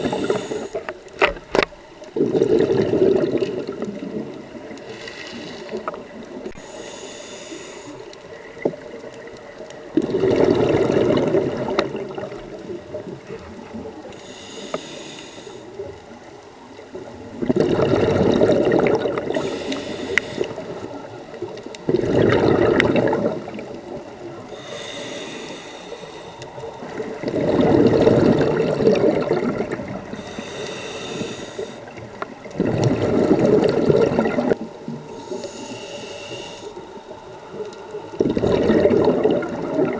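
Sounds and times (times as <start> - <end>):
regulator hissing inhale: 0.0 - 1.0, 4.8 - 8.3, 14.1 - 15.9, 19.3 - 20.8, 24.4 - 27.0, 30.1 - 32.0, 35.1 - 37.0
diver exhaling bubbles: 2.1 - 6.6, 9.9 - 14.1, 17.3 - 21.0, 21.8 - 24.1, 26.8 - 31.7, 32.4 - 35.1, 38.1 - 39.9.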